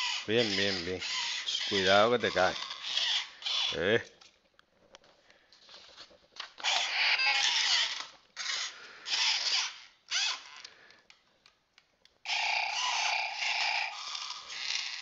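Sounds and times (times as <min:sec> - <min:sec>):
toy robot electronic bursts: 0:00.0 - 0:03.9, 0:06.6 - 0:10.6, 0:12.3 - 0:15.0.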